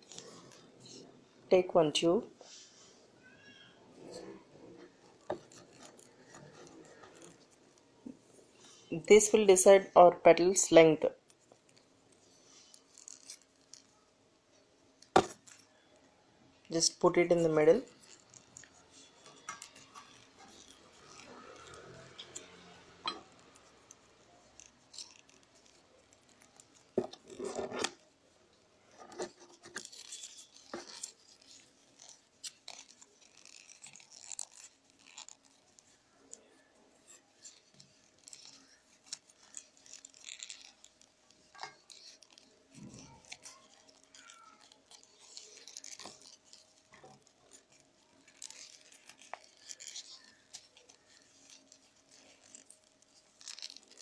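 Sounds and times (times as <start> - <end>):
paper tubes rustling and clicking: 0.0 - 1.2, 4.0 - 9.4, 10.6 - 54.0
paper brushing: 28.9 - 54.0.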